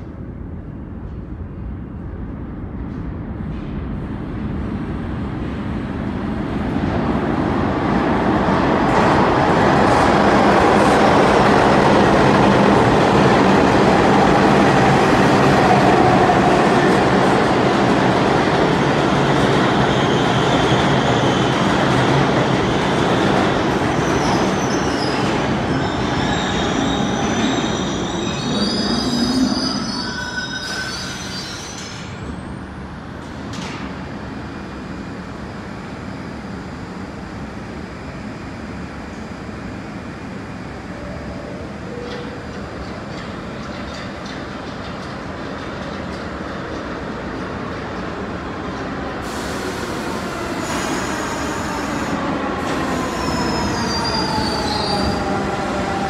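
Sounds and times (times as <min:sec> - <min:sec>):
subway train rail noise: 0:00.0 - 0:56.0
high wheel squeals: 0:24.2 - 0:32.0, 0:52.8 - 0:55.4.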